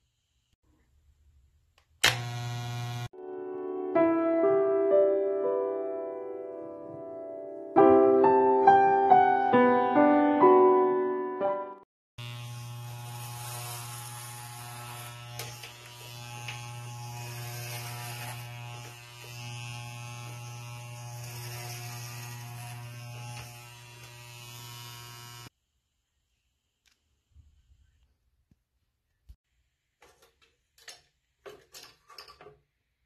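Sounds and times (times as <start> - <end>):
electric hair clippers buzzing: 2.0 - 3.2, 12.2 - 25.5.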